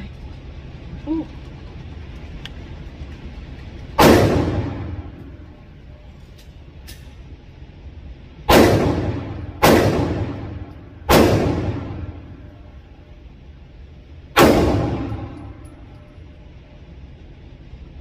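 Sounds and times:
pistol shots echoing indoors: 0:03.9 - 0:05.7, 0:08.3 - 0:13.0, 0:14.2 - 0:16.6.

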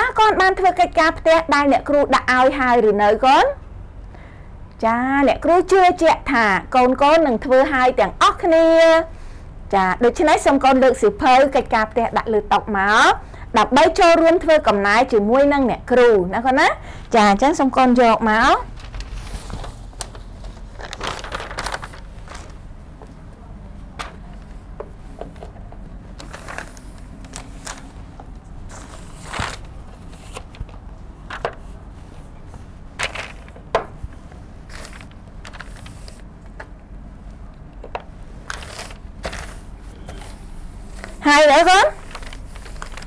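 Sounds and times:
low steady hum: 0:00.0 - 0:43.0
paper rustling and scraping: 0:18.7 - 0:22.6, 0:26.1 - 0:36.3, 0:38.4 - 0:43.0.

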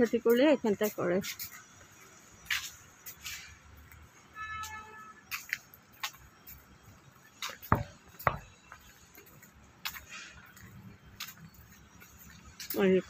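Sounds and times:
sharp knocks and clicks: 0:07.6 - 0:08.6.

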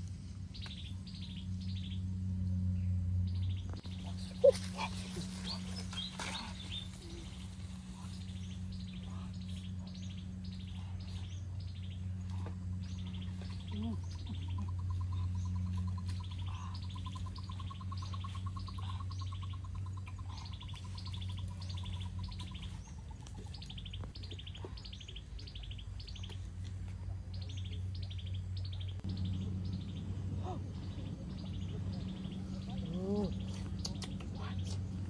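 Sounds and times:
small birds chirping: 0:00.0 - 0:35.0
steady low hum: 0:00.0 - 0:35.0
rapid low bird trill: 0:03.2 - 0:26.3.

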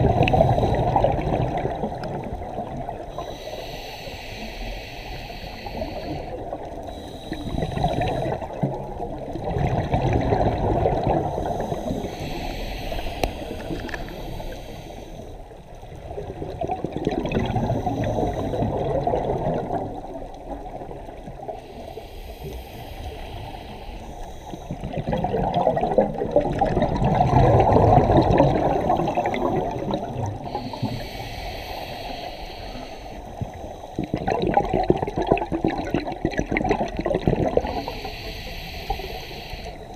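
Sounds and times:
gurgling exhaled bubbles: 0:00.0 - 0:03.3, 0:07.4 - 0:14.6, 0:15.9 - 0:21.8, 0:24.7 - 0:31.0, 0:33.4 - 0:38.3
regulator inhale hiss: 0:00.1 - 0:01.2, 0:03.0 - 0:08.7, 0:11.1 - 0:15.8, 0:17.4 - 0:19.0, 0:20.0 - 0:25.0, 0:27.6 - 0:34.2, 0:37.0 - 0:39.9.

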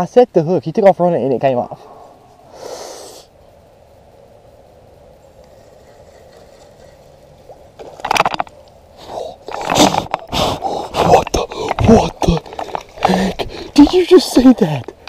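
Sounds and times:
scraping and splashing: 0:05.5 - 0:08.6.

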